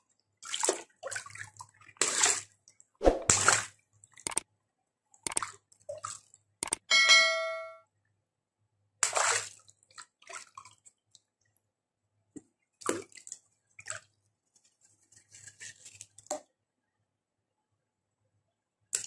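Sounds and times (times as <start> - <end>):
short ringing tone: 6.9 - 7.8.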